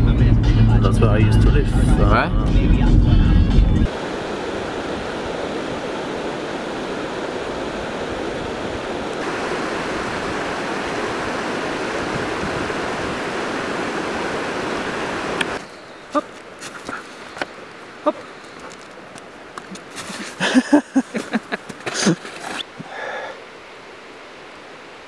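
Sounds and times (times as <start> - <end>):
stream flowing over rocks: 3.9 - 25.0.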